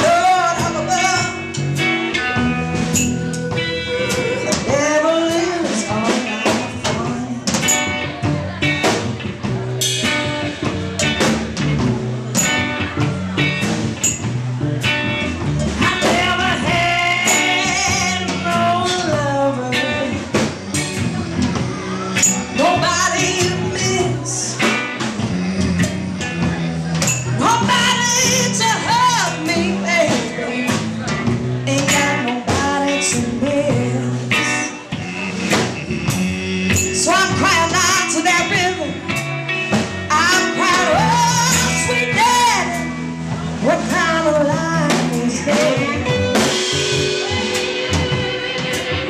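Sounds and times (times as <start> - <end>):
woman singing: 0.0 - 1.5, 2.8 - 8.1, 15.7 - 20.5, 22.2 - 24.8, 27.4 - 30.8, 31.7 - 34.9, 36.7 - 39.2, 40.1 - 42.9, 43.6 - 46.4
drums: 0.0 - 49.0
electric guitar: 0.0 - 49.0
upright bass: 0.0 - 49.0.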